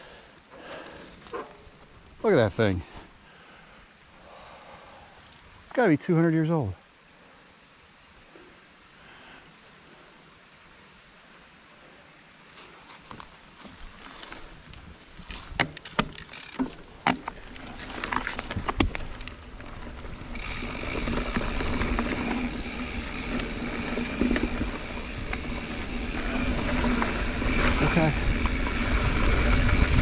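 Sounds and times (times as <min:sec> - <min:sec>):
tyre and wind noise: 0:12.9 - 0:30.0
bike knocks and rattles: 0:15.3 - 0:19.3.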